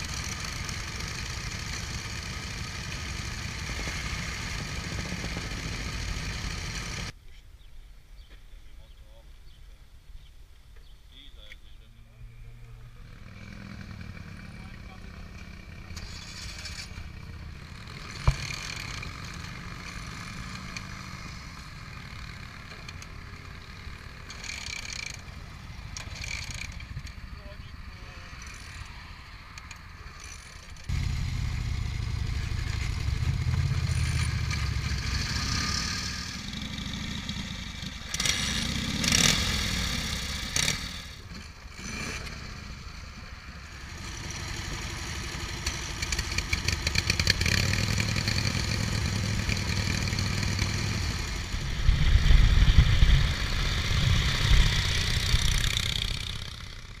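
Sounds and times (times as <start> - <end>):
motorcycle engine starting and revving: 0.0 - 7.2, 12.6 - 57.0.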